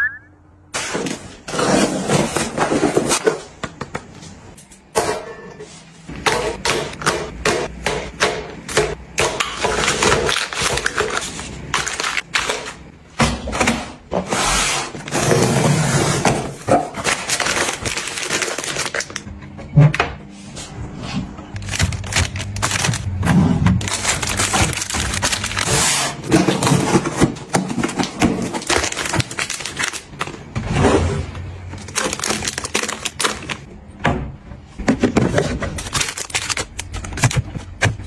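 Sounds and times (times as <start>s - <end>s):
plastic and paper wrappers crinkling: 9.7s - 12.9s, 16.9s - 19.3s, 21.5s - 23.2s, 23.8s - 30.5s, 31.7s - 33.7s, 35.1s - 38.0s.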